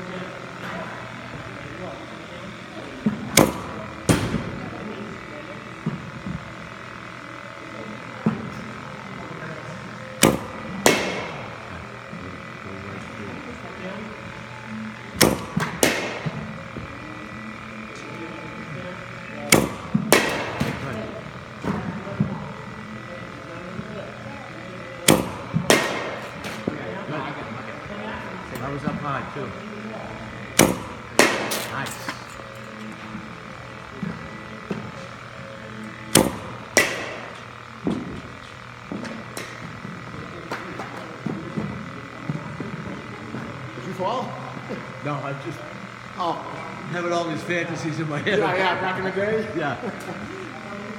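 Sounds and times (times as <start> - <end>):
steady hum: 0.0 - 50.9
bat cracking against ball: 3.0 - 4.6, 10.2 - 12.6, 15.1 - 17.0, 19.5 - 22.0, 25.0 - 26.8, 30.5 - 32.5, 36.1 - 42.0.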